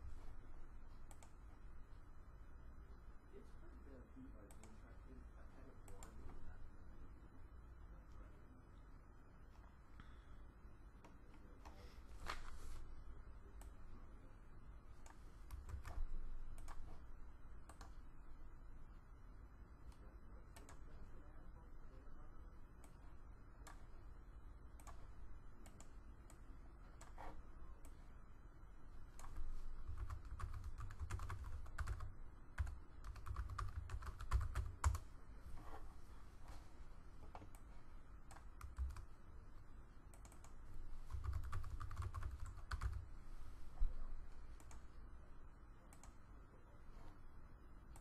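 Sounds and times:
low steady hum: 0:00.0 - 0:48.0
computer mouse clicks: 0:01.0 - 0:01.4, 0:04.5 - 0:04.8, 0:05.8 - 0:06.3, 0:15.0 - 0:18.0, 0:19.8 - 0:20.9, 0:22.8 - 0:23.9, 0:24.7 - 0:28.0, 0:29.0 - 0:35.8, 0:37.2 - 0:39.1, 0:40.1 - 0:43.1, 0:44.5 - 0:45.0, 0:45.9 - 0:46.2.

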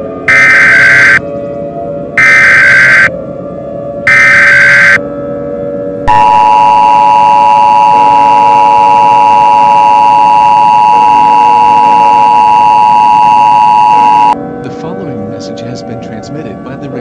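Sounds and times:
dual-tone alert beep: 0:00.3 - 0:01.2, 0:02.2 - 0:03.1, 0:04.1 - 0:05.0, 0:06.1 - 0:14.4.

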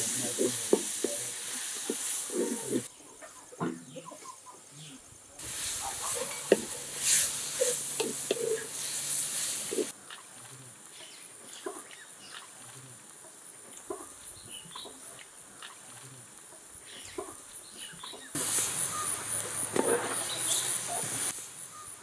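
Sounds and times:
masala sizzling in hot oil: 0:00.0 - 0:02.9, 0:05.3 - 0:22.0
wooden spatula scraping pot: 0:05.9 - 0:09.0
bird chirps: 0:16.8 - 0:22.0.

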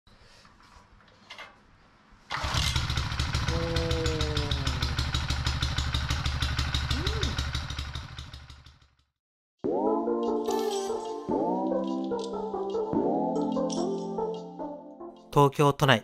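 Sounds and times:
plate compactor engine running: 0:02.3 - 0:08.9.

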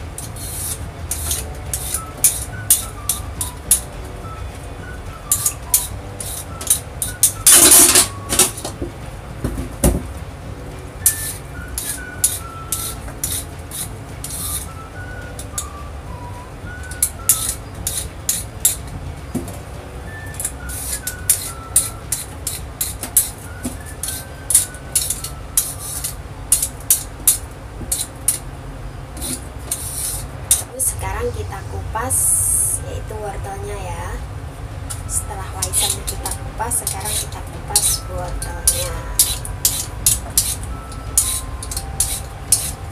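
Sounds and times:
peeler scraping yam skin: 0:00.0 - 0:03.9, 0:05.3 - 0:07.8, 0:11.1 - 0:15.7, 0:16.8 - 0:18.9, 0:20.2 - 0:28.5, 0:29.2 - 0:30.7, 0:35.7 - 0:42.9
soft background music: 0:00.0 - 0:42.9.

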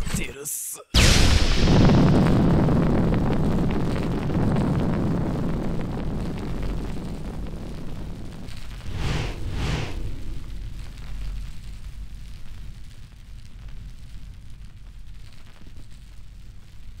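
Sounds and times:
fire crackling: 0:01.7 - 0:17.0
explosion rumbling: 0:08.7 - 0:12.8
short rushing bursts: 0:08.8 - 0:10.8.

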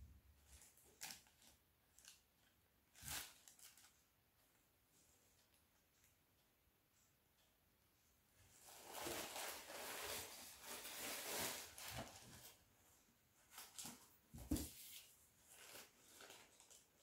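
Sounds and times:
tissue paper rustling: 0:02.9 - 0:04.0, 0:08.5 - 0:12.7, 0:13.4 - 0:17.0.

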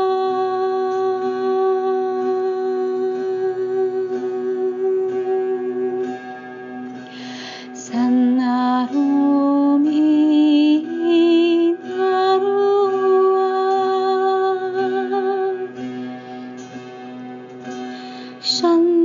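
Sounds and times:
woman singing with vibrato: 0:00.0 - 0:16.0, 0:18.3 - 0:19.0.

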